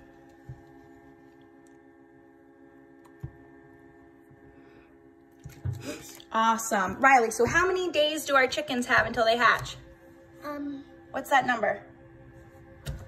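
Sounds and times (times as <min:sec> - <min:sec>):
egg incubator humming: 0:00.0 - 0:13.0.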